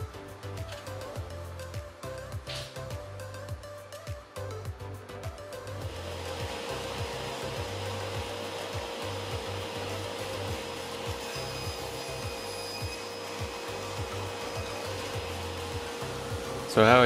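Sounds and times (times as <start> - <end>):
music with bass beat: 0.0 - 16.7
table saw cutting wood: 5.8 - 17.0.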